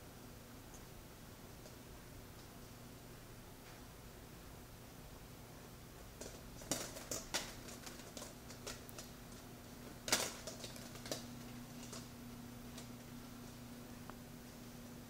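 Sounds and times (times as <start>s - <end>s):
cats' paws tapping and scuffing: 6.2s - 12.1s.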